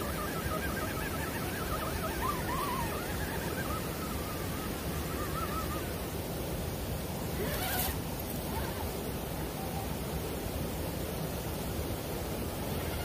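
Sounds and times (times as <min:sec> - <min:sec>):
faint wavering whine: 0:00.0 - 0:13.0
flowing water: 0:00.0 - 0:13.0.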